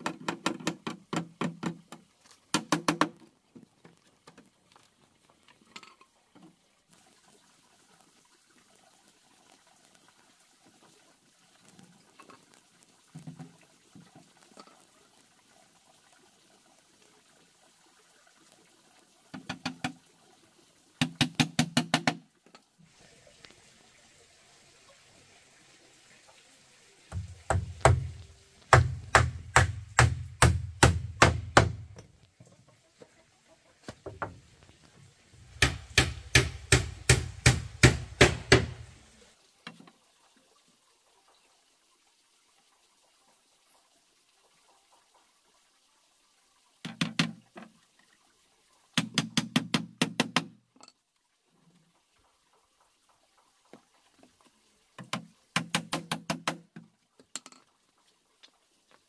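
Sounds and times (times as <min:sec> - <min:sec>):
hammer driving nails into wood: 0:02.6 - 0:03.2, 0:21.0 - 0:22.2, 0:28.7 - 0:32.1, 0:35.6 - 0:38.9, 0:49.0 - 0:50.6, 0:55.0 - 0:56.7.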